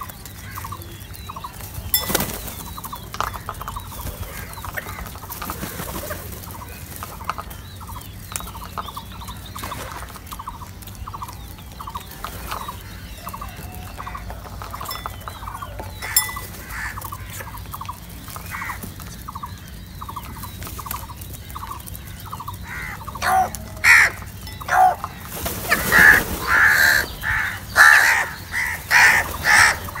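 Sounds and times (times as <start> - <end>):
crows rattling calls: 0.1 - 30.0
crows cawing loudly: 0.4 - 0.8, 4.2 - 5.4, 12.6 - 17.6, 18.3 - 18.9, 21.5 - 30.0.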